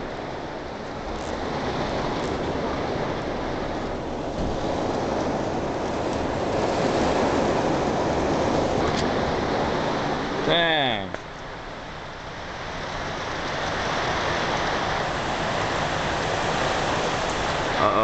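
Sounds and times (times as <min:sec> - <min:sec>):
heavy rain on corrugated roof: 0:12.8 - 0:18.0.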